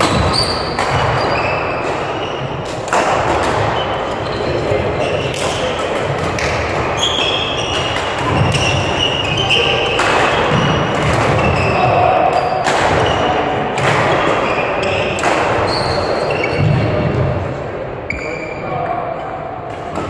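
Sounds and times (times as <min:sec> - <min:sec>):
racket striking shuttlecock: 0:00.0 - 0:03.8, 0:07.7 - 0:11.6, 0:15.1 - 0:15.7
court shoes squeaking: 0:00.0 - 0:17.4, 0:18.0 - 0:19.0.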